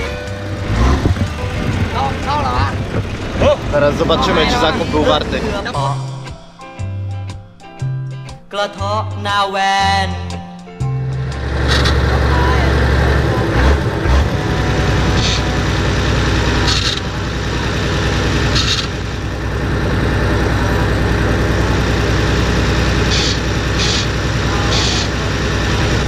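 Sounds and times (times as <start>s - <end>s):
vehicle engine running: 0.0s - 26.0s.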